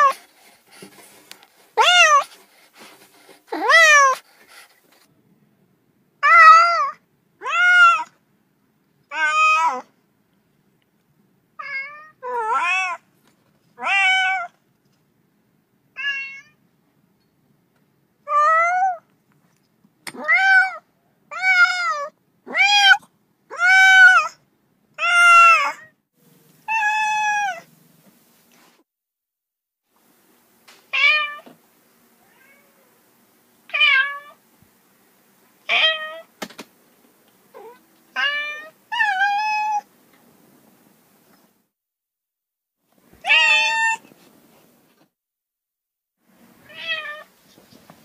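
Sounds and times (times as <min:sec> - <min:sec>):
cat meowing: 0:01.8 - 0:02.3, 0:03.6 - 0:04.2, 0:06.2 - 0:08.1, 0:09.1 - 0:09.8, 0:11.6 - 0:13.0, 0:13.8 - 0:14.6, 0:16.0 - 0:16.6, 0:26.7 - 0:27.7, 0:32.2 - 0:32.9, 0:35.7 - 0:36.3, 0:37.5 - 0:39.9, 0:43.2 - 0:44.1, 0:46.7 - 0:47.3.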